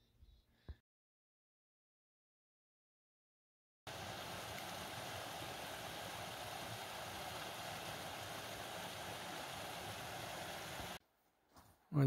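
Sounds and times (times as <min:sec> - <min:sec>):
stream splashing over rocks: 0:03.9 - 0:11.0.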